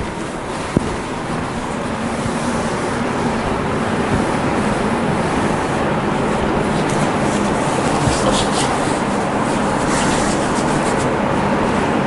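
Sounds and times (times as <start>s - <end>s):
steady loud hiss: 0.0s - 12.0s
eraser wiping chalkboard: 4.1s - 12.0s
hands rubbing skin: 6.6s - 11.1s.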